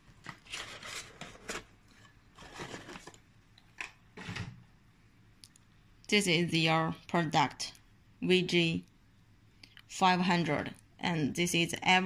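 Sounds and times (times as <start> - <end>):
cardboard box rustling and scraping: 0.4 - 3.2.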